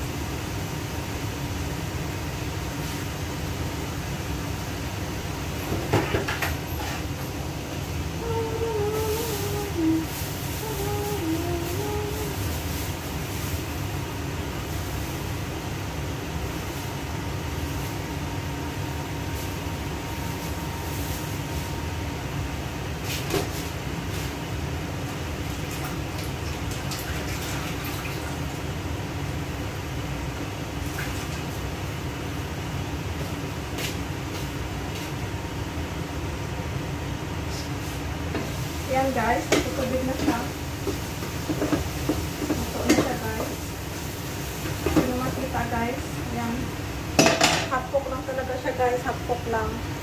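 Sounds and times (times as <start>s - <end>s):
faint steady hum: 0.0s - 50.0s
gas stove burners rumbling: 0.0s - 50.0s.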